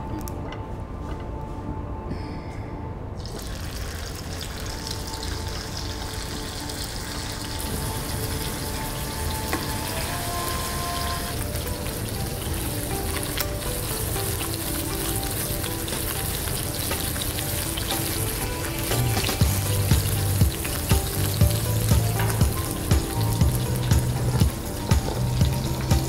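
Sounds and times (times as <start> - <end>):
background music: 0.0 - 26.0
meat sizzling in oil: 3.2 - 26.0
low beat: 7.6 - 26.0.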